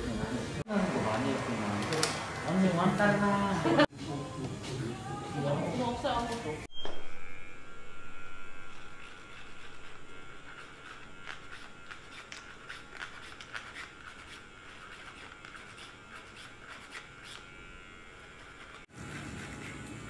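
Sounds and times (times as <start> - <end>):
electric hair clipper humming: 0.7 - 3.9, 5.8 - 20.0.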